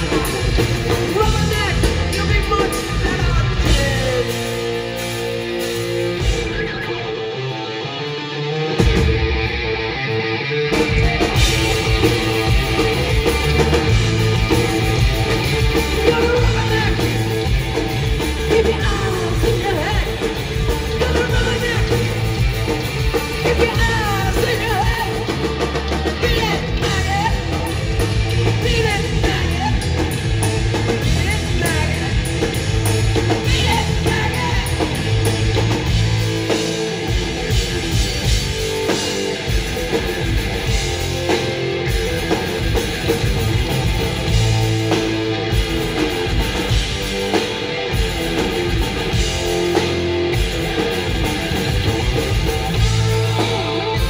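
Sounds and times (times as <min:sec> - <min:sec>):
person singing: 0:00.0 - 0:04.7, 0:15.7 - 0:17.5, 0:18.3 - 0:22.4, 0:23.2 - 0:27.8, 0:28.4 - 0:30.2, 0:33.2 - 0:35.4
heavy metal band playing live: 0:00.0 - 0:54.0.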